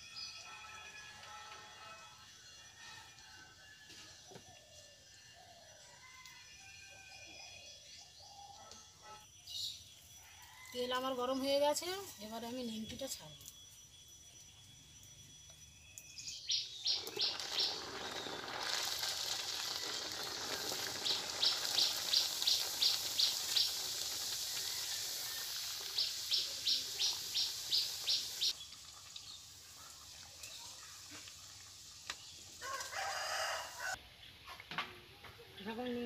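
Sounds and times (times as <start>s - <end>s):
bird chirping: 16.0s - 18.6s, 25.9s - 29.4s
dough sizzling in hot oil: 16.6s - 34.0s.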